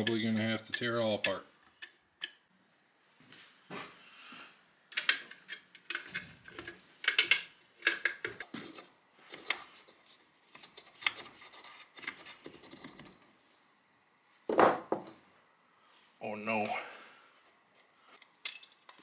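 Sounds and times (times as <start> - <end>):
metal parts scraping and clicking: 4.9 - 13.3.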